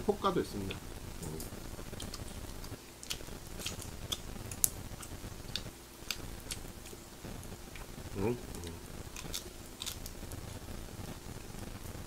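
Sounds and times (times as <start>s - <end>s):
fat popping and crackling: 0.0s - 12.0s.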